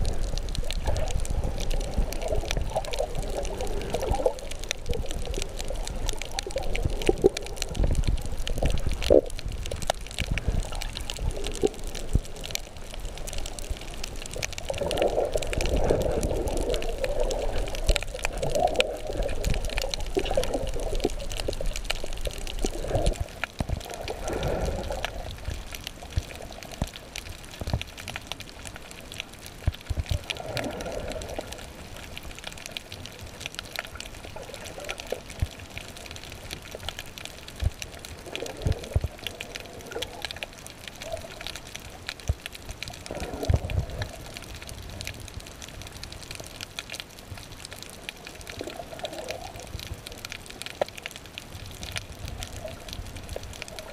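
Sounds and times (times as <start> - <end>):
muffled underwater sloshing: 0.0 - 53.9
sharp clicks and crackles: 0.0 - 53.9.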